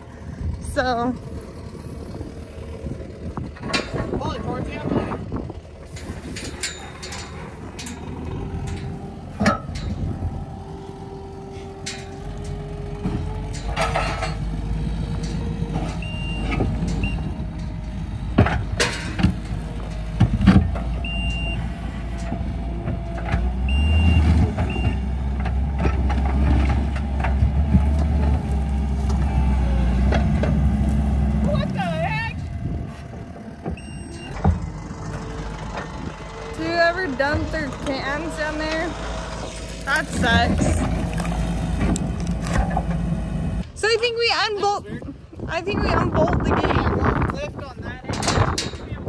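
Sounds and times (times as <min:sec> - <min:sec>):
diesel loader engine running: 0:00.0 - 0:49.0
backup alarm beeping: 0:16.0 - 0:17.4, 0:21.0 - 0:21.7, 0:23.6 - 0:25.0, 0:33.7 - 0:34.4.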